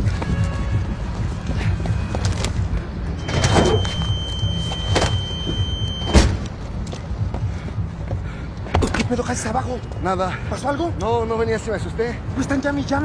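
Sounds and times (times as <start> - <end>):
car door shutting: 4.8 - 6.6.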